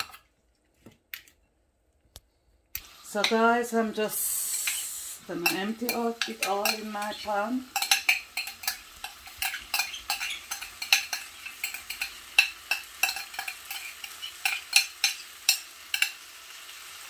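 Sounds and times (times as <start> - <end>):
pan frying faintly: 2.8 - 17.0
utensil scraping glass bowl: 7.8 - 16.1.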